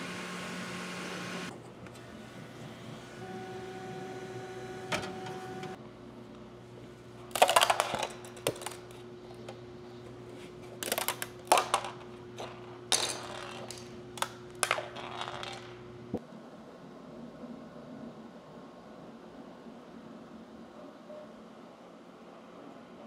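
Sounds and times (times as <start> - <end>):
three d printer hum: 0.0 - 5.8.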